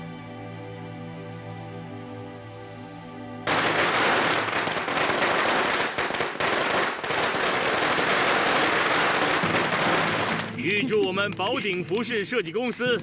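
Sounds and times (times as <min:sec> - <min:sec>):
firecrackers crackling: 0:03.5 - 0:12.6.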